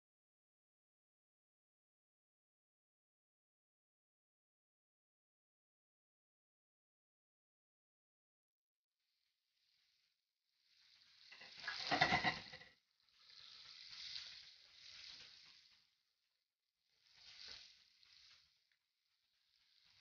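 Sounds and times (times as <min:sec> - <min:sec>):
garlic and onion sizzling in oil: 0:10.6 - 0:16.2, 0:16.8 - 0:20.0.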